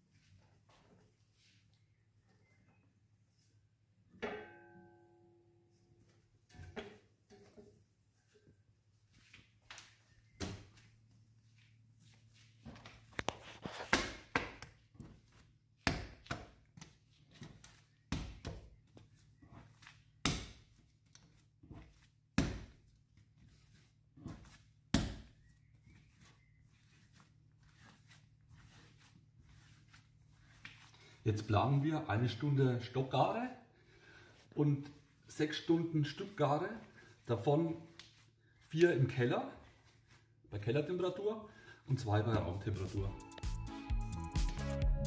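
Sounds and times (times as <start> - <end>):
dough thudding on stone countertop: 13.8 - 26.3.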